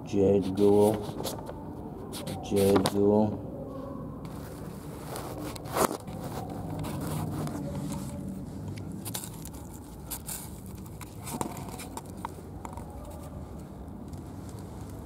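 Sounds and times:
paper rustling and crunching: 4.3s - 13.3s.

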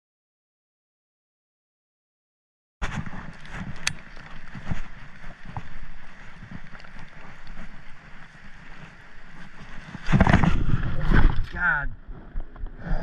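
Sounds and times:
footsteps thumping and rustling: 2.8s - 11.5s
wind noise on microphone: 2.8s - 13.0s.

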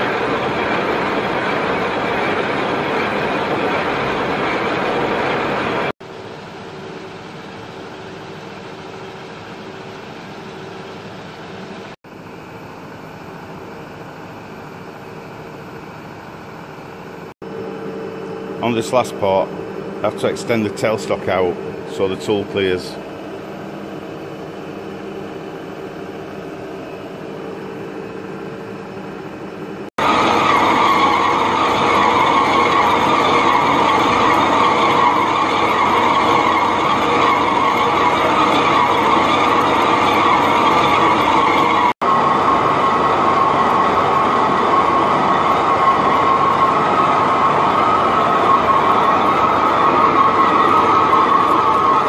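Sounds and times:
lathe cutting with high whine: 0.0s - 6.0s, 16.8s - 52.0s
lathe running hum: 0.0s - 52.0s.

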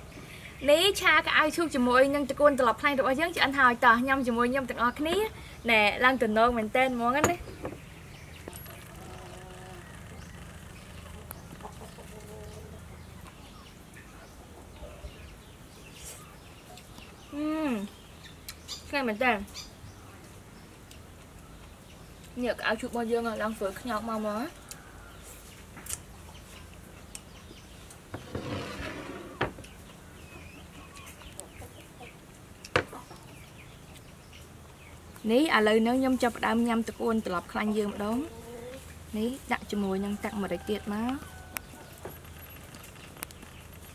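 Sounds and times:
chickens clucking: 7.3s - 17.2s, 29.2s - 35.0s, 35.8s - 43.7s
chicken calls: 8.4s - 15.4s.

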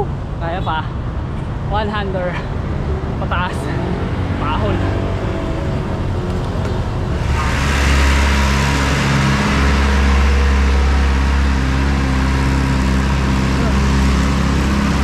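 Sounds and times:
vehicle engine running: 4.5s - 15.0s.

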